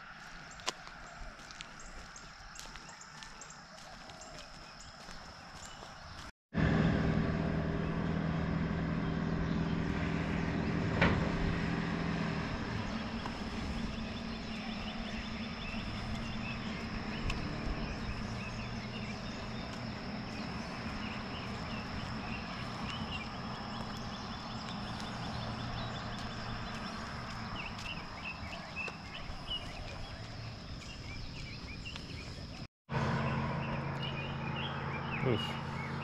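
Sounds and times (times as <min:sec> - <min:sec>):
footsteps on wet pavement: 0:00.0 - 0:06.3, 0:12.3 - 0:32.7
outdoor background noise: 0:00.0 - 0:36.0.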